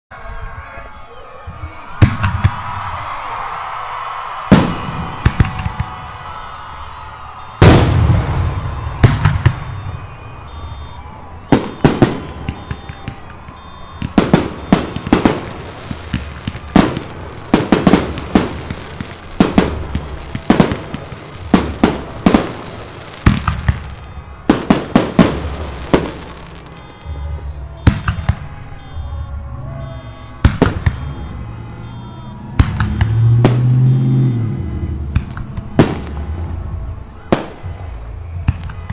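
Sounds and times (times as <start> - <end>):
fireworks shells bursting: 7.3 - 29.2
low echo of bangs: 7.6 - 9.8, 30.4 - 31.6, 32.5 - 34.3.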